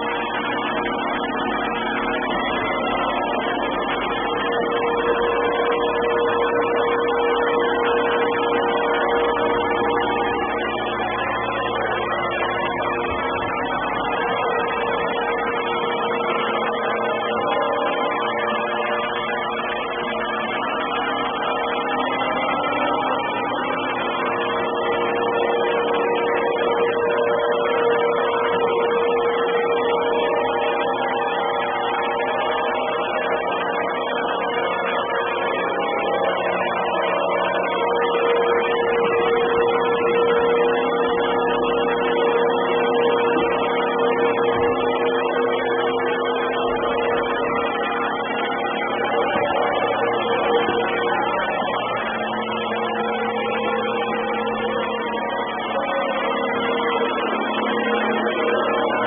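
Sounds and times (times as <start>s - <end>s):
robot vacuum cleaner humming: 32.1s - 59.0s.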